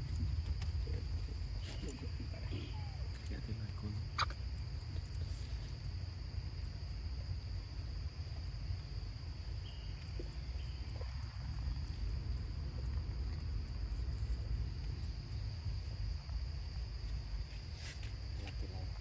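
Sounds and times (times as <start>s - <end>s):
low rumble: 0.0s - 17.4s
insects trilling: 0.0s - 19.0s.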